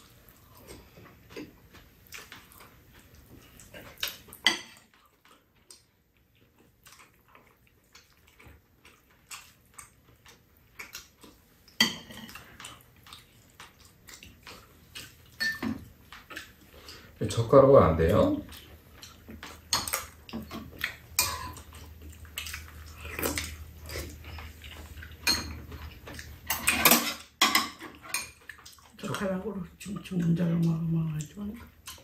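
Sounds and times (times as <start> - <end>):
spoons clinking against bowls: 15.4 - 15.8, 21.2 - 21.6, 25.2 - 25.6.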